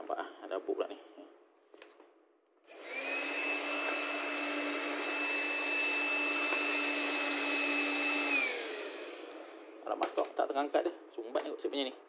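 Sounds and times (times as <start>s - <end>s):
vacuum cleaner motor whine: 2.7s - 9.8s.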